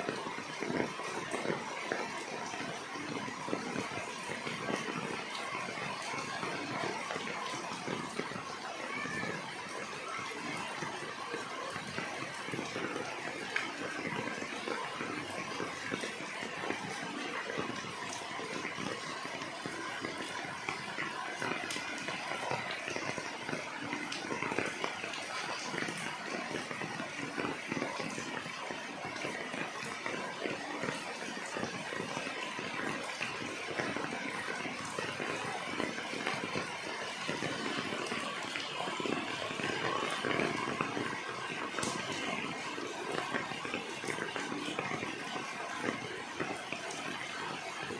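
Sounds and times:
raindrops ticking on leaves: 0.1s - 47.9s
rain hissing: 9.8s - 47.9s.

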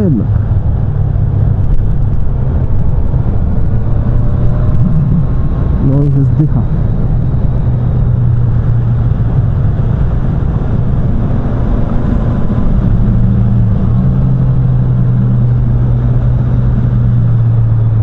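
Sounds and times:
motorcycle engine running: 0.0s - 18.0s
wind rush on microphone: 0.0s - 18.0s.

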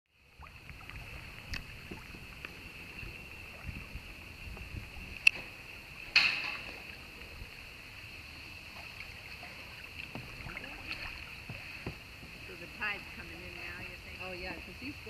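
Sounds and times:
steady background hiss: 0.2s - 15.0s.

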